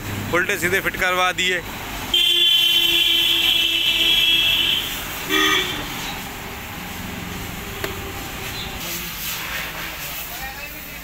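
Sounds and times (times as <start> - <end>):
vehicle horn honking: 2.1 - 6.0.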